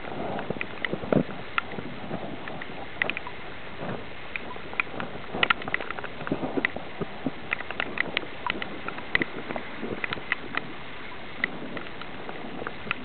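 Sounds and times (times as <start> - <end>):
rain hissing: 0.0 - 13.0
sharp ticks: 2.5 - 3.3, 4.3 - 6.8, 7.5 - 9.3, 10.0 - 10.7.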